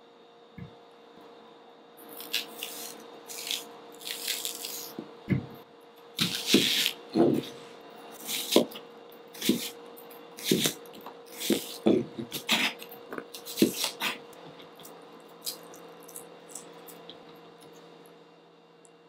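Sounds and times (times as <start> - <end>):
knife crunching through onion: 2.0 - 5.0, 6.2 - 7.6, 8.2 - 17.1.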